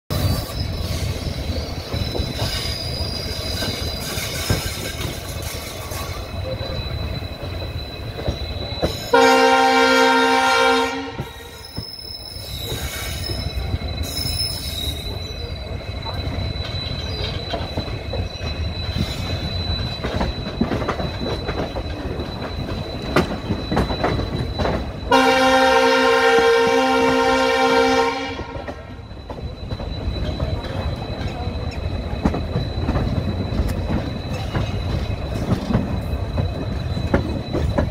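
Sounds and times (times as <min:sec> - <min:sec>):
train running rumble: 0:00.1 - 0:37.9
train wheels squealing on rails: 0:00.1 - 0:37.9
train horn blowing: 0:09.1 - 0:11.6, 0:25.1 - 0:28.8.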